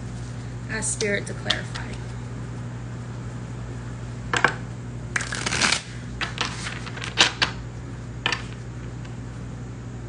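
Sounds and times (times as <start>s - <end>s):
cards shuffling clicks: 5.2s - 7.6s.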